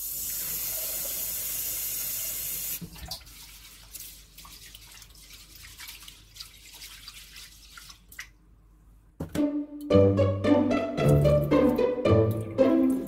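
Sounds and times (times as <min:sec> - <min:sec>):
water dripping in a sink: 0:00.0 - 0:08.4, 0:11.1 - 0:13.0.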